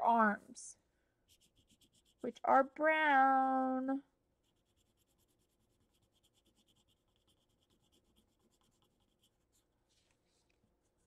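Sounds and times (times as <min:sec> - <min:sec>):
colored pencil scratching on paper: 0:01.2 - 0:02.4, 0:04.4 - 0:10.1.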